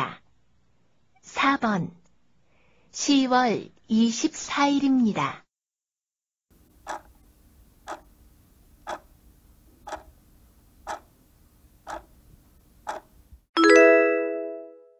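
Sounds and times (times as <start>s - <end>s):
clock ticks: 6.8s - 7.2s, 7.9s - 8.1s, 8.8s - 9.1s, 9.8s - 10.2s, 10.8s - 11.1s, 11.8s - 12.2s, 12.8s - 13.1s.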